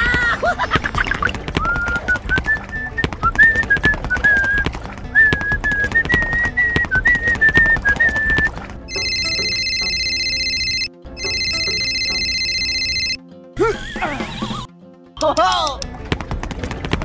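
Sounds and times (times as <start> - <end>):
whistled tune over percussion: 1.0 - 9.4
phone ringtone: 8.9 - 13.3.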